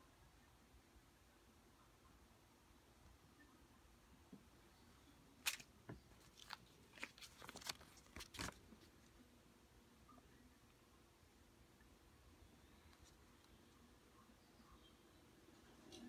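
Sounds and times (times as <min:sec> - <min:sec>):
banknotes crackling and rustling: 0:05.4 - 0:09.2.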